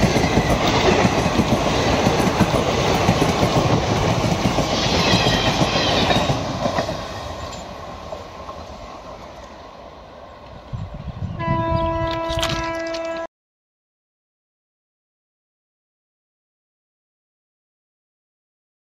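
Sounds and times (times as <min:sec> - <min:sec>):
train wheels clattering over rails: 0:00.0 - 0:09.4.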